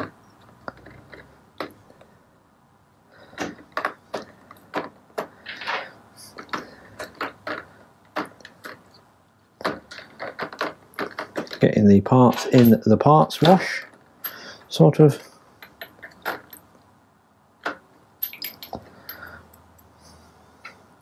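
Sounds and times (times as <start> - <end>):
metal bolts clinking in plastic tub: 18.2 - 19.4.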